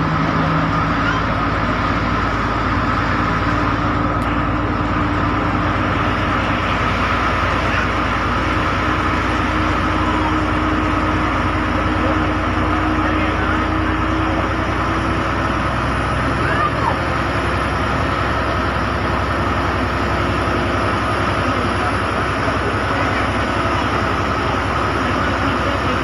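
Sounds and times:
bus engine humming with whine: 0.0 - 26.0.

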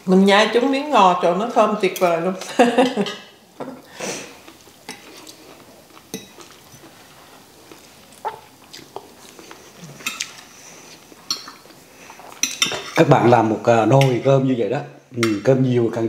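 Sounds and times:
quiet chewing: 3.6 - 12.6
cutlery clinking on plates: 11.2 - 11.6, 12.2 - 13.1.

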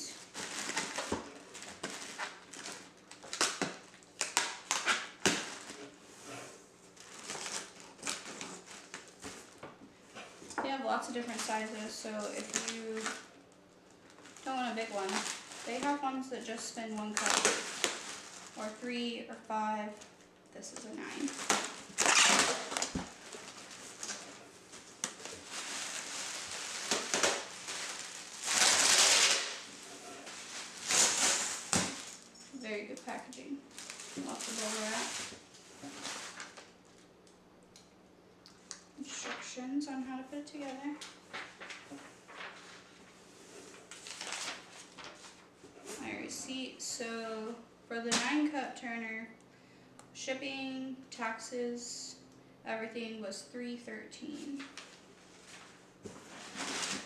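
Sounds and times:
crackles of tape and cardboard: 0.0 - 19.0, 19.8 - 39.5, 40.5 - 46.4
bubble wrap crinkling: 0.0 - 37.4, 40.4 - 46.4, 54.3 - 57.0
box cutter slicing packing tape: 22.0 - 22.9.

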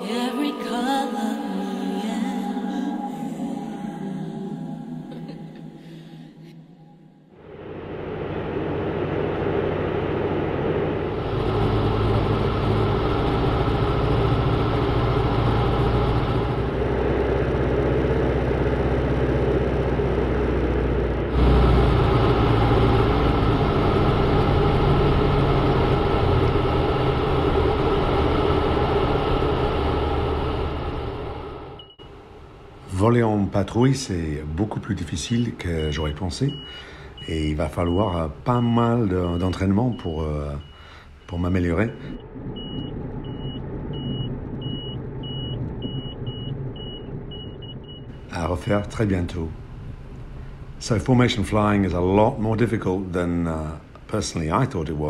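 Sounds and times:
airflow noise: 5.2 - 15.4
light aircraft engine and propeller: 7.5 - 31.9
high electronic beeps: 35.3 - 48.1.

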